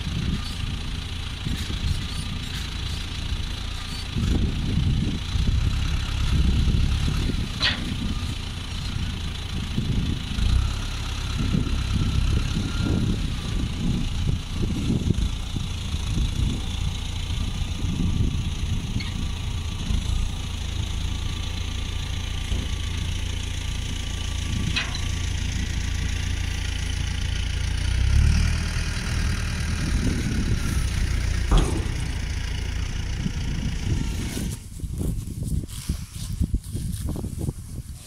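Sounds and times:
tractor engine rumbling: 0:00.0 - 0:38.0
sharp knocks: 0:31.4 - 0:33.2.

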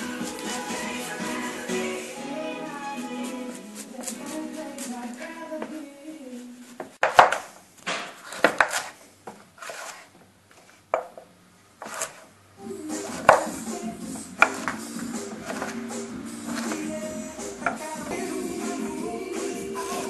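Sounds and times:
background music: 0:00.0 - 0:05.5, 0:12.6 - 0:20.0.

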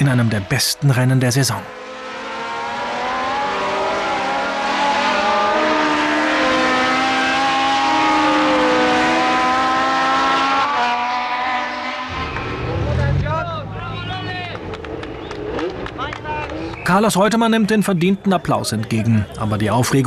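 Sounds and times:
race car engines at high revs: 0:01.6 - 0:16.9.

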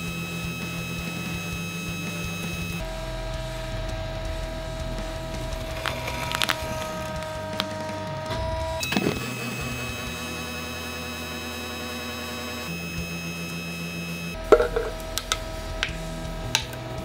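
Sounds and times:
hydraulic press motor whine: 0:04.1 - 0:16.0
plastic crackling: 0:05.4 - 0:08.2.

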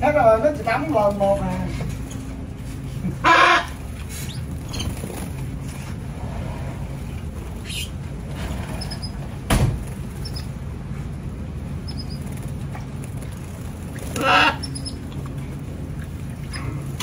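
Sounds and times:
low background rumble: 0:00.0 - 0:17.0
canaries chirping: 0:03.2 - 0:05.2, 0:07.6 - 0:09.3, 0:10.1 - 0:10.6, 0:11.8 - 0:12.5, 0:13.8 - 0:16.8.

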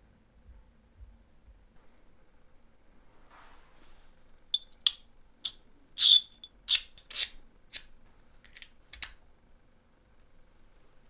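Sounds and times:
soft rustle of handling: 0:01.7 - 0:04.5
metal rings clicking and clinking: 0:04.6 - 0:07.4.

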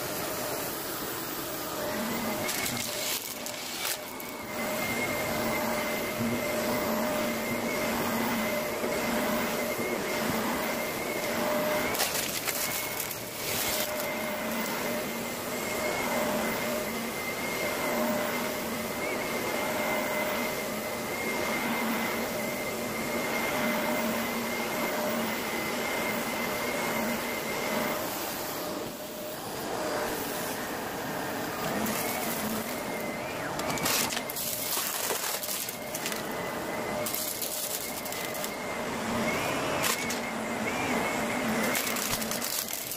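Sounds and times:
vacuum cleaner running: 0:00.0 - 0:42.9.

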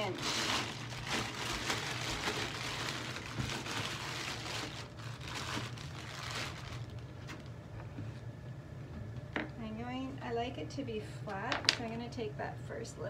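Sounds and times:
plastic bag crinkling: 0:00.0 - 0:07.7
low steady hum: 0:00.0 - 0:13.0.

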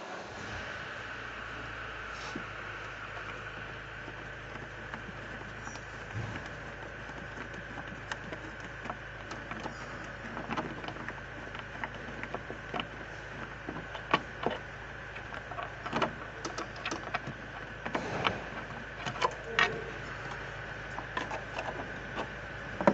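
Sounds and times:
background hum: 0:00.0 - 0:22.9
metal parts clicking and tapping: 0:15.2 - 0:18.0.

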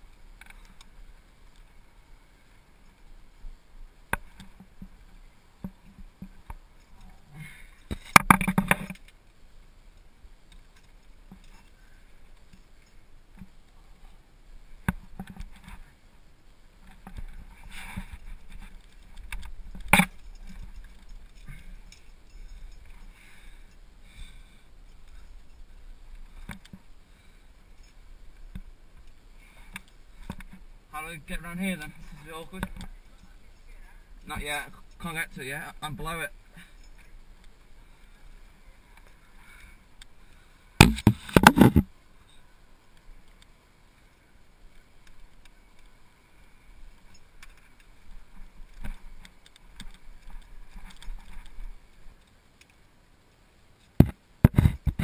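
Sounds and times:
gear scraping against rock: 0:40.8 - 0:41.9.

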